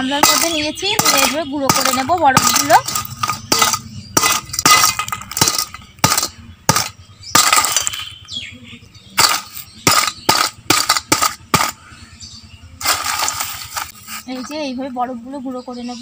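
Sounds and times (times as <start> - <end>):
stone pestle pounding ice in bowl: 0.0 - 8.1, 9.2 - 11.8, 12.8 - 13.9.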